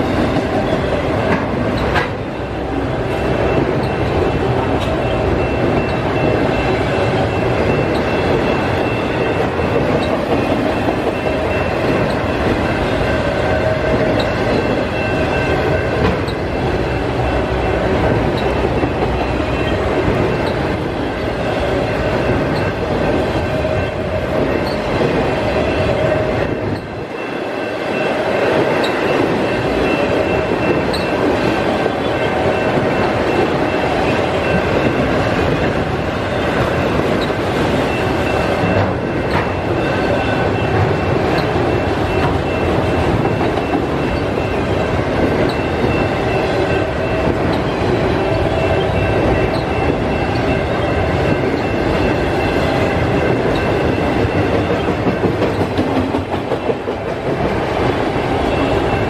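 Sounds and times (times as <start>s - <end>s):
train wheels rumbling on rails: 0.0s - 59.0s
high ringing tones: 0.7s - 59.0s.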